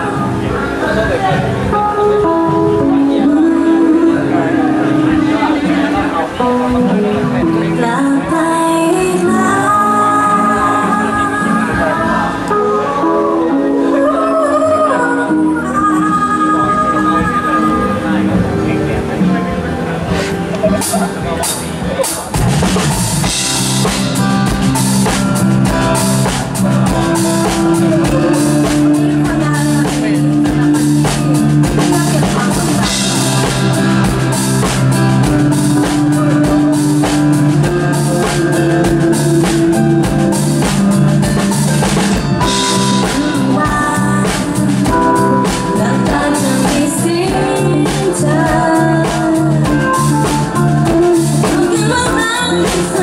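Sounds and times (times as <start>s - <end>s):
electric bass: 0.0s - 53.0s
keyboard: 0.0s - 53.0s
drum kit beat: 20.1s - 53.0s.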